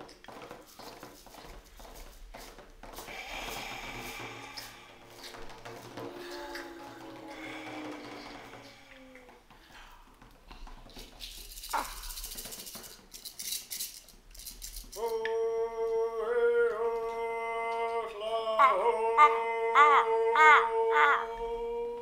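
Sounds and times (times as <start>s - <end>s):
rattle shaken: 0.6s - 8.8s, 10.9s - 15.2s
person humming: 2.4s - 9.8s, 14.9s - 22.0s.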